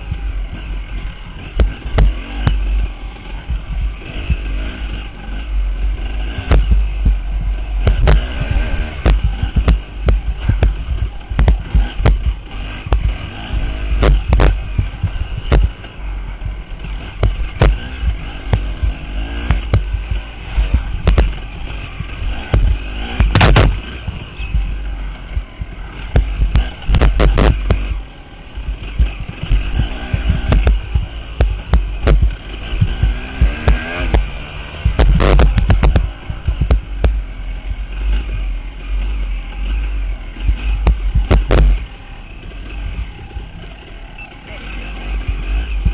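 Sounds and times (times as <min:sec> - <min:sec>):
dirt bike engine running hard: 0:00.0 - 0:45.9
knocks and thuds over bumps: 0:00.0 - 0:45.9
wind rumble on microphone: 0:28.7 - 0:41.8.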